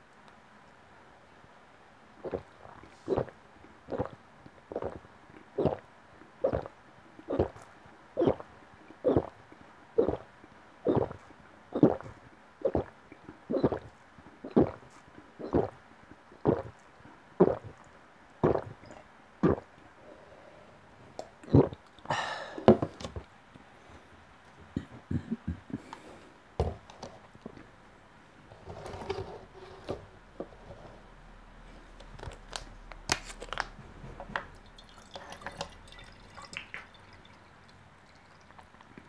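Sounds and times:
person gulping a drink: 2.2s - 15.8s, 16.4s - 16.8s, 17.4s - 19.7s, 21.4s - 23.2s, 34.3s - 39.0s
breathy exhale: 22.1s - 22.8s.

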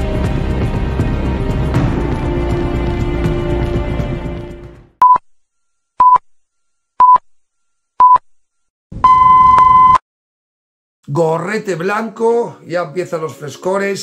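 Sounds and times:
long beep: 9.0s - 10.0s.

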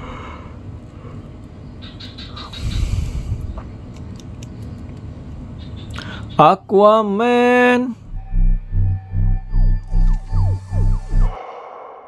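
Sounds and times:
film score pulsing beat: 8.0s - 11.4s
falling swoops: 8.0s - 12.0s.

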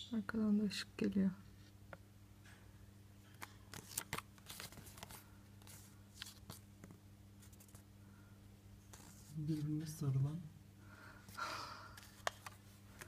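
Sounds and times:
low steady hum: 0.0s - 13.0s
paper crinkling and rustling: 3.3s - 7.8s, 12.0s - 13.0s.

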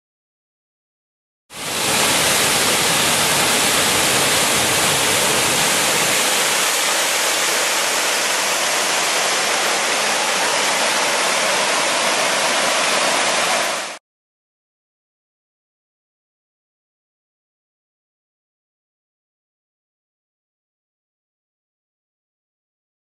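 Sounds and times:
waterfall and brook rushing: 1.6s - 14.0s.

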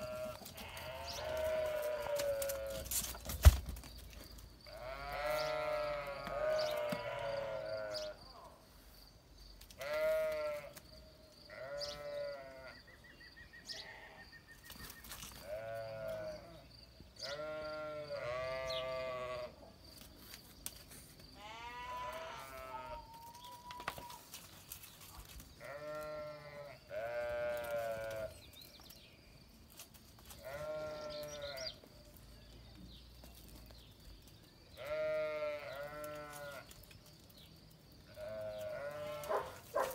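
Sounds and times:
sheep and goats bleating: 0.0s - 3.0s, 4.6s - 8.3s, 9.8s - 10.8s, 11.5s - 12.9s, 13.7s - 14.3s, 15.4s - 19.6s, 21.3s - 24.2s, 25.5s - 28.5s, 30.3s - 31.9s, 34.7s - 36.8s, 38.0s - 39.9s.

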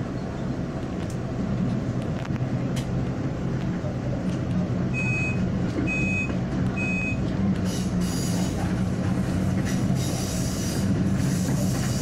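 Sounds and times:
rolling rail noise: 0.0s - 12.0s
high hissing from train wheels: 7.6s - 12.0s.

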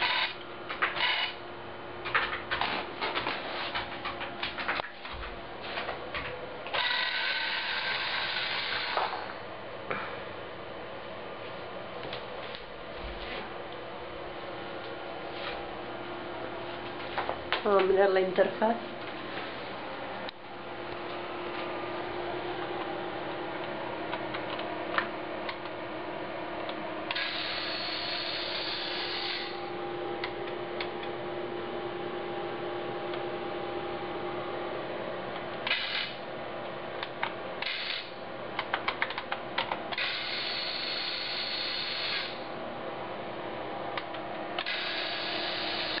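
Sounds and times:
small gear motors whirring: 0.0s - 0.4s, 6.7s - 9.2s, 27.1s - 29.6s, 39.9s - 42.4s, 44.6s - 46.0s
steady low hum: 0.0s - 46.0s.

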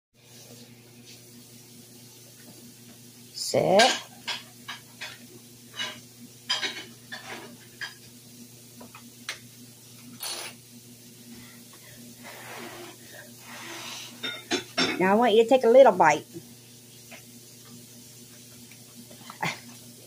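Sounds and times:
dishes and cutlery clinking: 3.6s - 8.1s, 14.2s - 15.0s.

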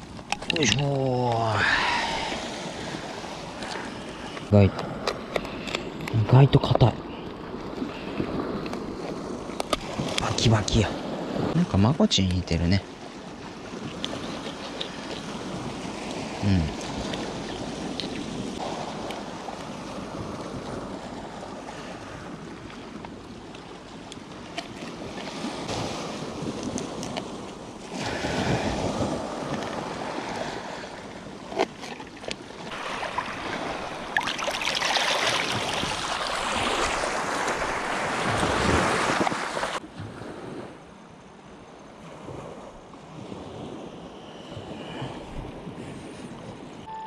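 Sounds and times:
sea waves washing on shore: 0.0s - 47.0s
wind on microphone: 24.8s - 30.8s.

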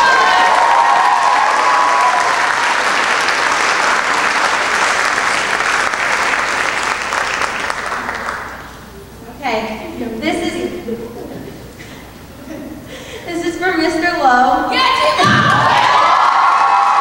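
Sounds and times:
audience applauding: 0.0s - 8.9s, 15.3s - 17.0s.

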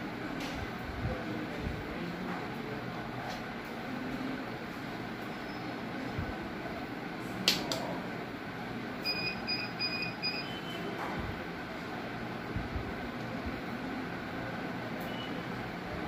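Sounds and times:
short high beeps: 9.0s - 10.9s.

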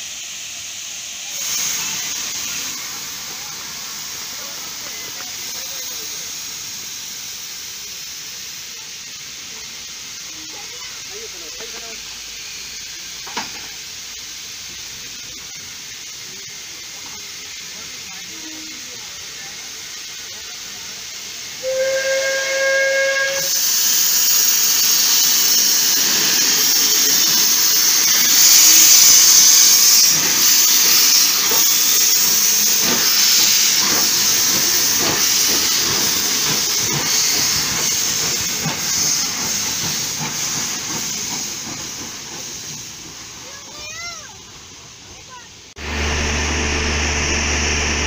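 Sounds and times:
drain cocks hissing: 0.0s - 45.5s
steam exhaust beats: 0.0s - 48.0s
steam locomotive whistle blast: 21.5s - 24.9s.

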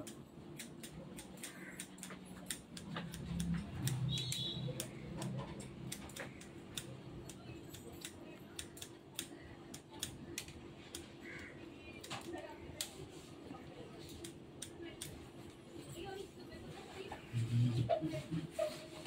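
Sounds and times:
scissors snipping hair: 0.0s - 15.5s.

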